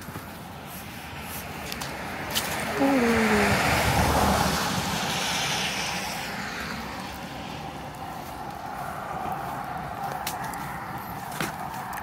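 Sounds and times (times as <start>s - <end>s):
tyres hissing on wet road: 0.8s - 9.7s.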